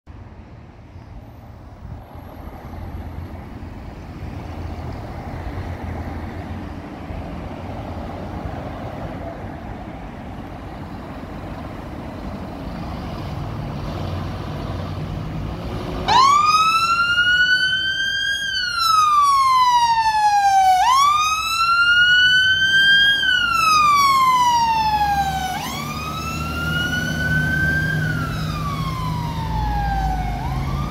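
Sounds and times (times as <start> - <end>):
road traffic passing: 0.1 - 30.9
fire engine wail siren: 15.6 - 30.9.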